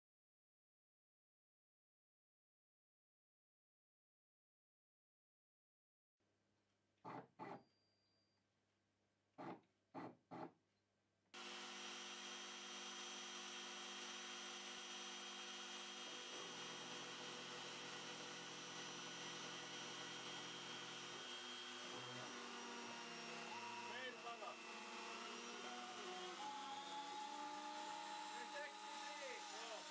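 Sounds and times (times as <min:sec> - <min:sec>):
milling machine cutting plastic: 0:11.4 - 0:29.9.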